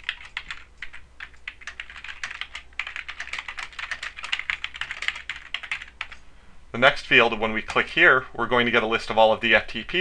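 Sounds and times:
fast keyboard typing: 0.0 - 6.2.

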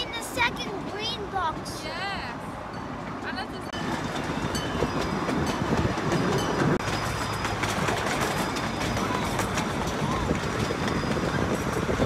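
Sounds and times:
train rumble: 0.0 - 12.0
train wheels clicking over rail joints: 3.8 - 12.0.

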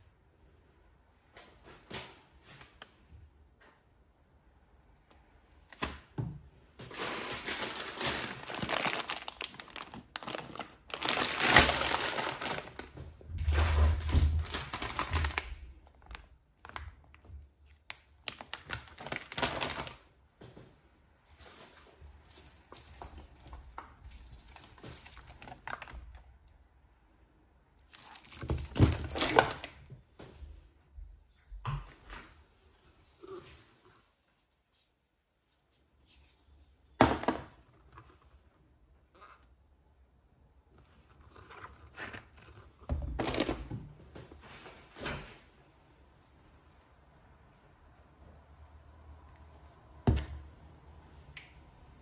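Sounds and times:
plastic packaging crinkling: 6.8 - 20.2, 21.2 - 26.3, 27.9 - 29.9, 41.0 - 43.7.

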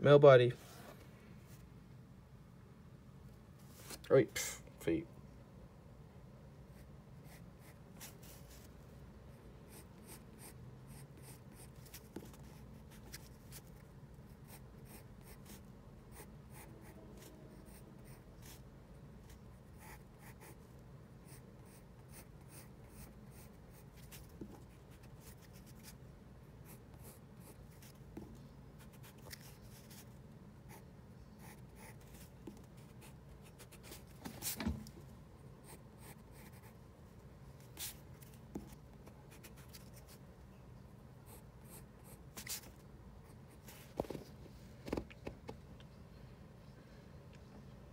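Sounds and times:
pencil scratching on paper: 6.8 - 8.7, 9.7 - 13.8, 14.4 - 18.6, 19.7 - 20.6, 31.4 - 34.1, 35.6 - 36.8.

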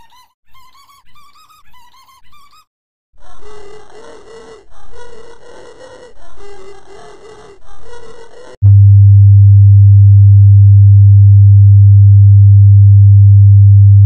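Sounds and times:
loud low sine tone: 8.6 - 14.0.

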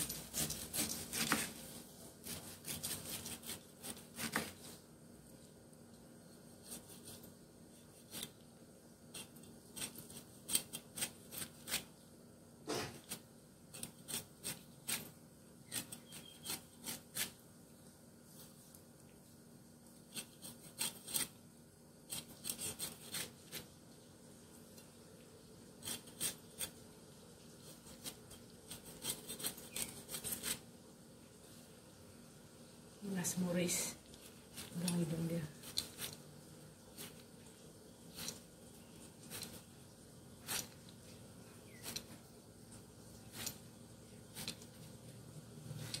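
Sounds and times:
knife rasping through pineapple rind: 0.0 - 4.6, 13.8 - 17.4, 20.1 - 21.4, 22.1 - 23.7, 25.8 - 26.8, 27.7 - 30.6.

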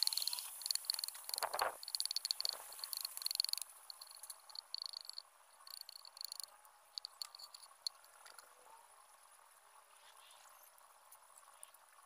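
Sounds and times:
insects trilling: 0.0 - 8.4.

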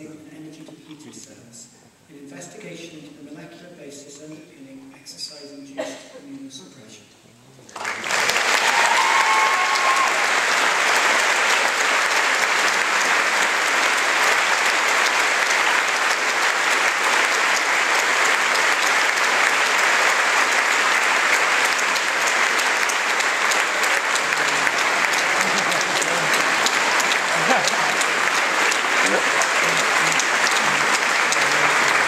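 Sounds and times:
audience applauding: 7.7 - 32.0.

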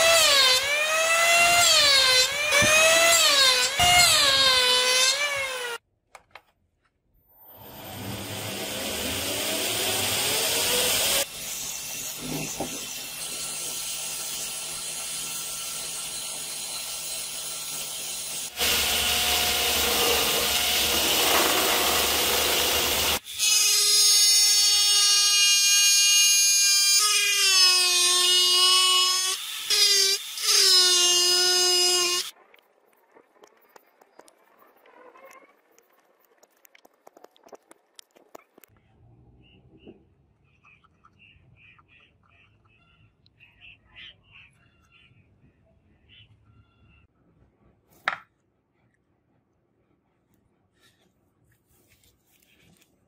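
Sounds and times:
rotary tool cutting wood: 7.6 - 32.3.

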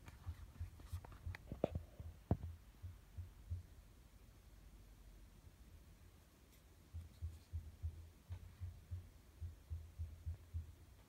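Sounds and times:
soft low handling thumps: 0.0 - 3.9, 6.9 - 11.0.

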